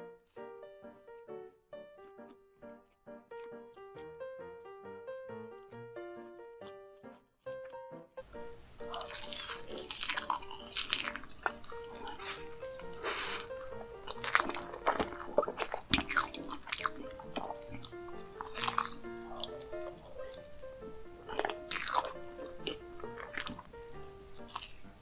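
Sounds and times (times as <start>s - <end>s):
light background music: 0.0s - 25.0s
wet chewing with mouth clicks: 2.0s - 4.1s, 8.4s - 25.0s.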